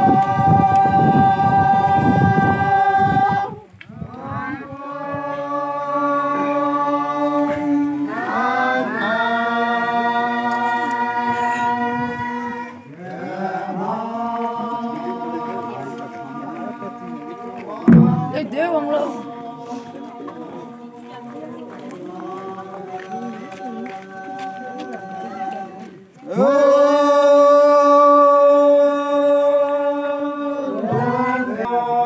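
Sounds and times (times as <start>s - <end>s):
group singing unaccompanied chant: 0.0s - 32.0s
singers breathing: 19.6s - 20.0s.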